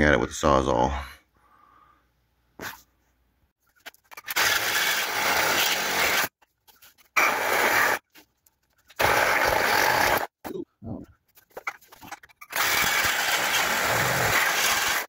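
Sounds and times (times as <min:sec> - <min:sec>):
reciprocating saw cutting steel: 0:12.4 - 0:15.0.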